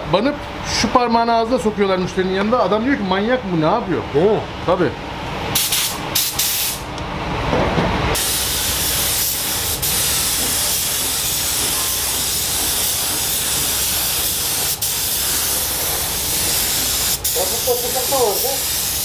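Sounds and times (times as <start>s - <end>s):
paint spray gun hissing: 5.6s - 6.9s, 8.2s - 19.0s.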